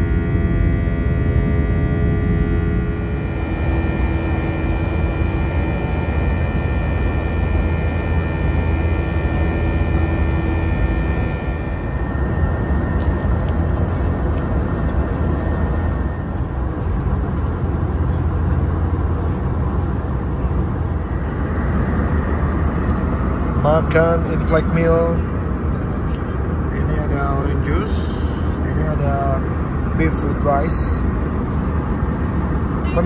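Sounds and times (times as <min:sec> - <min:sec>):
jet engine cabin drone: 0:00.0 - 0:33.0
faint high tones: 0:00.1 - 0:16.6.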